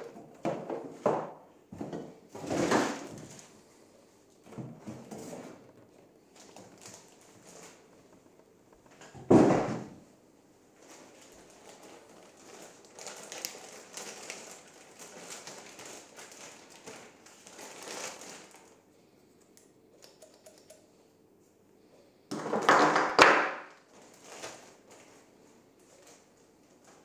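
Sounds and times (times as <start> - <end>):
plastic packaging crinkling: 6.3 - 7.9, 10.8 - 18.8, 23.7 - 27.0.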